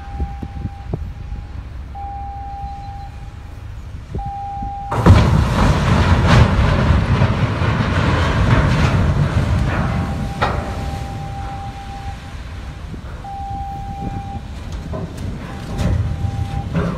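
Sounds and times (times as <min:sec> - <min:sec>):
ship horn tone: 0:00.0 - 0:05.3, 0:09.6 - 0:16.9
ship hulls crunching and grinding: 0:04.9 - 0:16.9.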